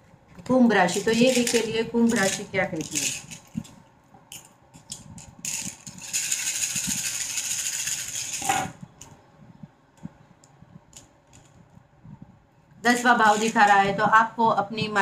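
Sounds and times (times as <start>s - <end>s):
shells rattling in hands: 1.2s - 3.7s, 4.3s - 8.5s.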